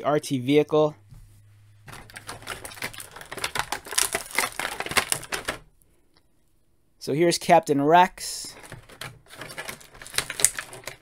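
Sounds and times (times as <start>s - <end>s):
plastic blister tray crackling: 1.8s - 5.7s, 8.4s - 11.0s.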